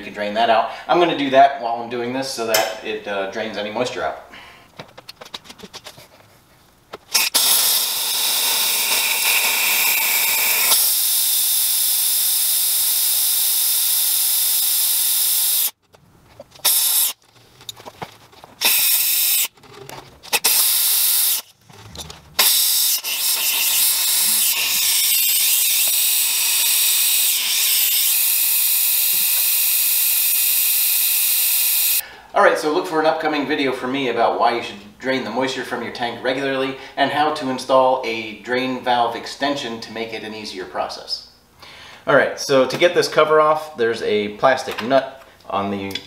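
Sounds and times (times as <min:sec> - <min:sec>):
compressed air hissing from valve: 0:07.1 - 0:15.8, 0:16.6 - 0:17.2, 0:18.6 - 0:19.5, 0:20.4 - 0:21.5, 0:22.4 - 0:32.0.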